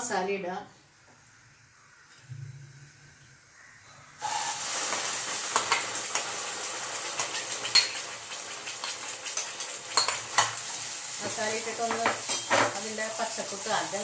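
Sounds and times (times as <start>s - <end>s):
paste sizzling in hot oil: 2.9s - 14.0s
spoon scraping bowl and pan: 4.2s - 6.3s, 7.0s - 12.9s.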